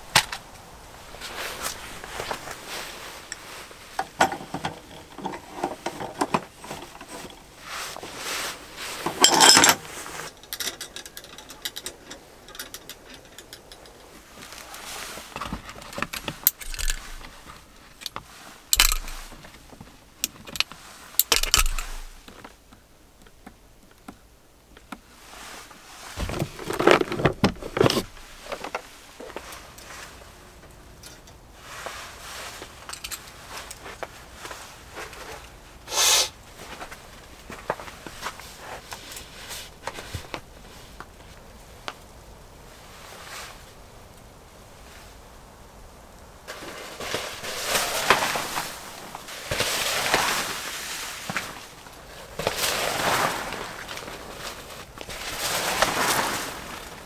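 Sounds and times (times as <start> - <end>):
gear rustling: 0.0 - 22.6, 25.2 - 35.6, 46.5 - 57.0
metal clinks and knocks: 9.0 - 14.2, 15.8 - 17.3, 18.8 - 19.3, 20.4 - 22.2.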